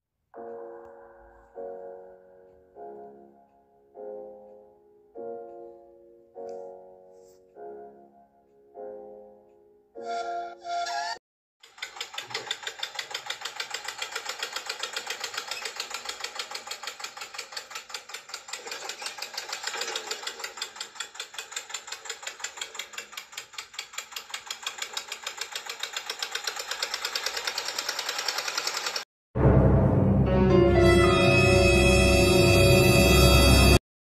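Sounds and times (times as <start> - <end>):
toy tractor motor and gears clattering: 11.6 - 29.1.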